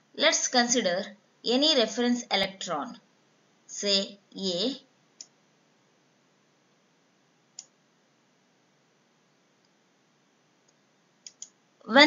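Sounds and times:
faint short clicks: 10.6 - 11.6.

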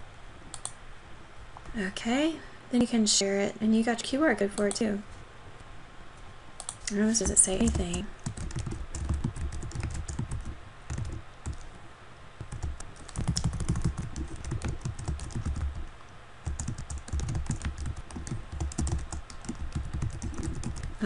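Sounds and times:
keyboard typing: 6.6 - 11.7, 12.4 - 21.0.

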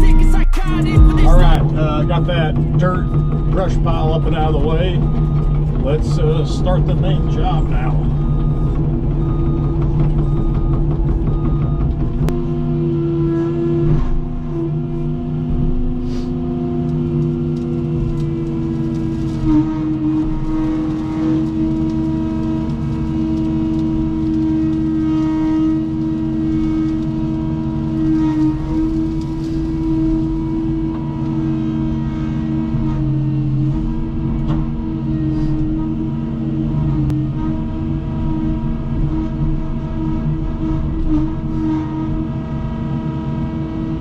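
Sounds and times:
excavator diesel engine running: 0.0 - 13.2.

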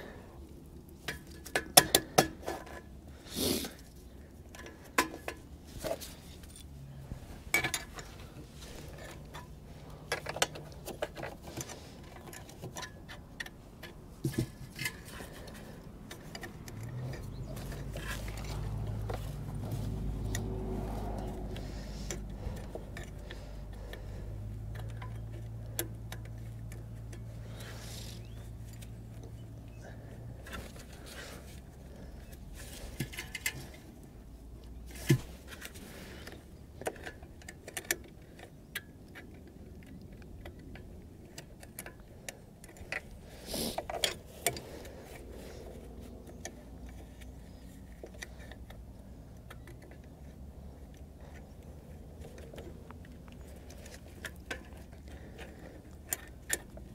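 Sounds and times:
metal clicks of screws and tools: 21.2 - 29.8, 30.4 - 56.9.

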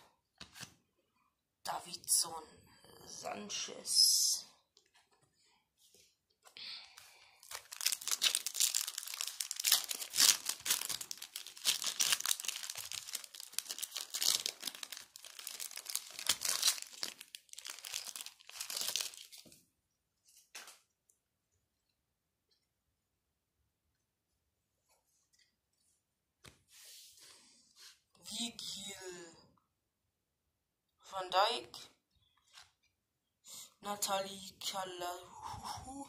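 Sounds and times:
foil wrapper tearing and crinkling: 7.4 - 19.4.

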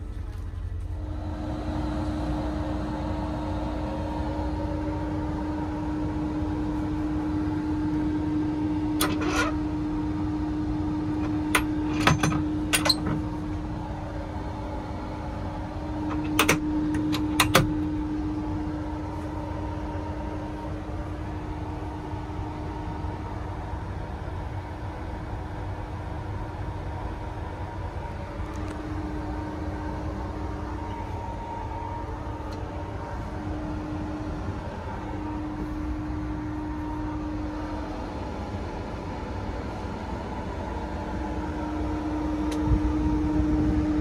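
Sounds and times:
machinery hum: 0.0 - 44.0
sharp clicks and knocks: 11.2 - 13.3, 16.1 - 17.9.

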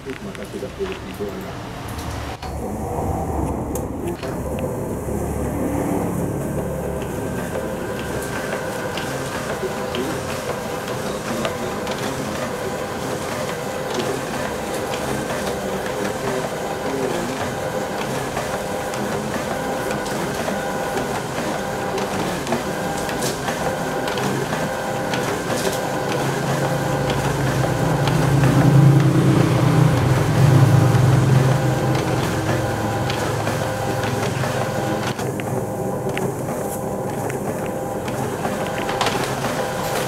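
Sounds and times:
scanner feeder whirring: 0.0 - 40.0
low rumble: 1.7 - 7.6.

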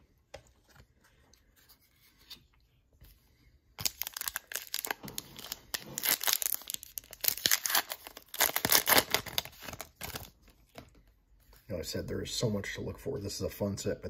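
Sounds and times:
card pack wrapper tearing: 3.8 - 10.4.

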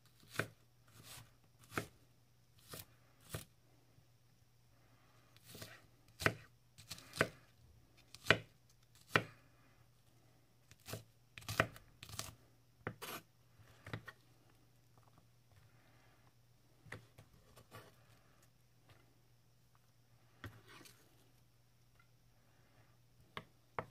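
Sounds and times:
knife chopping on wooden board: 8.2 - 8.5.

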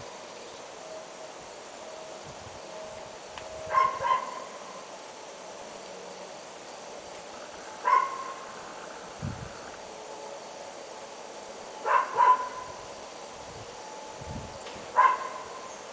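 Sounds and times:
dog barking: 3.7 - 4.6, 7.8 - 8.4, 11.8 - 12.7, 15.0 - 15.6.

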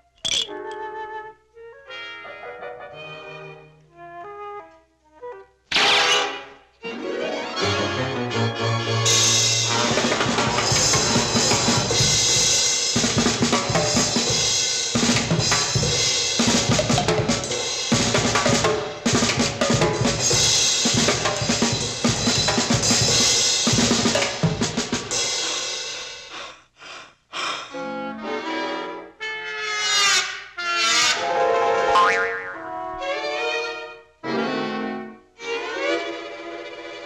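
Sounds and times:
orchestral cartoon music: 0.4 - 19.4.

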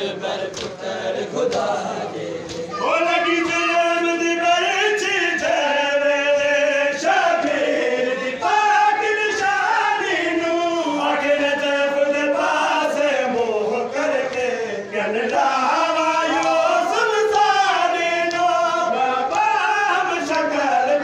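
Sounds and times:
men chanting a lament: 0.0 - 21.0.

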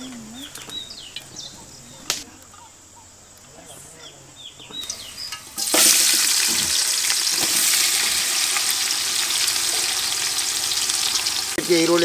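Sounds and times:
onions sizzling in hot oil: 4.8 - 12.0.

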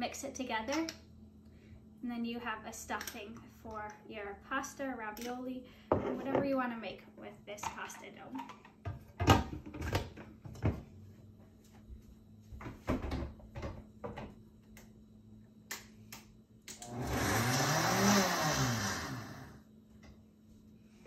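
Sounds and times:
blender motor running: 16.8 - 19.6.

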